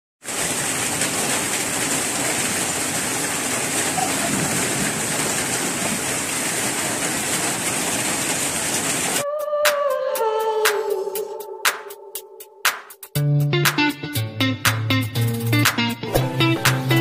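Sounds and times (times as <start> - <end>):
heavy rain on water and foliage: 0.2 - 9.2.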